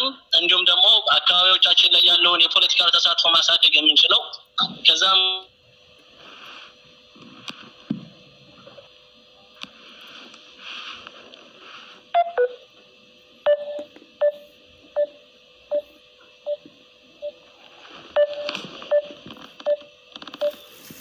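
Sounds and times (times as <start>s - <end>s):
short electronic phone beeps: 20.4s - 20.8s.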